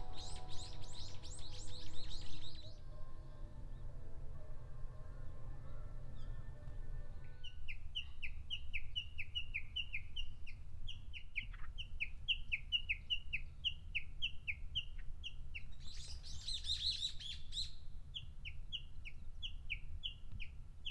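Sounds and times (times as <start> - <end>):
rapid bird twittering: 0.0 - 2.8
small bird calling: 0.0 - 2.8
background music: 0.0 - 7.4.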